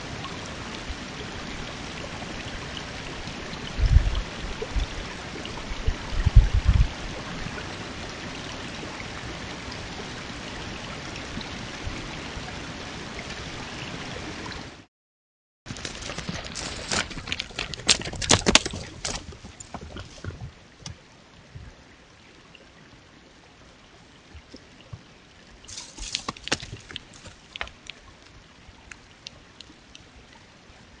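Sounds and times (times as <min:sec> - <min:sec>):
creek water trickling: 0:00.0 - 0:14.9, 0:15.7 - 0:31.0
sharp clicks and splashes: 0:15.7 - 0:21.7, 0:24.3 - 0:30.3.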